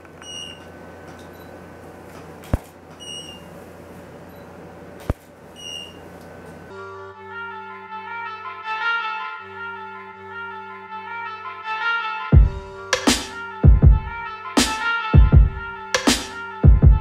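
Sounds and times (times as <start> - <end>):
electrical hum: 0.0 - 8.2
brass music: 6.7 - 17.0.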